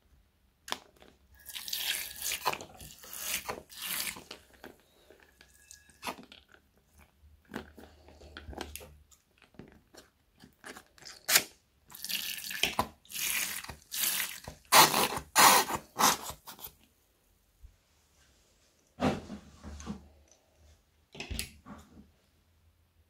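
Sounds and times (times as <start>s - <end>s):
wet slime squelching and splatting: 0.7s - 4.8s, 5.9s - 16.3s.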